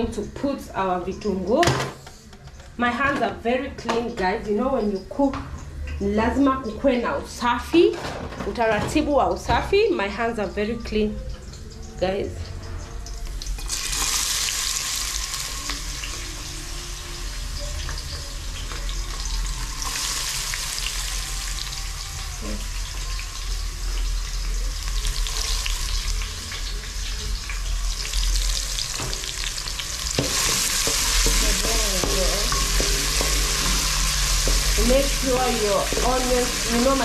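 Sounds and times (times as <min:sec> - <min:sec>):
onions sizzling in oil: 0:12.0 - 0:37.0.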